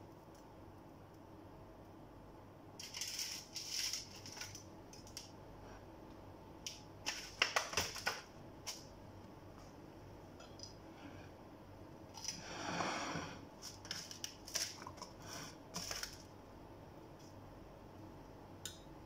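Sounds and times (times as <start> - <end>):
cornflakes crunching and crackling: 2.8 - 5.3, 13.6 - 16.3.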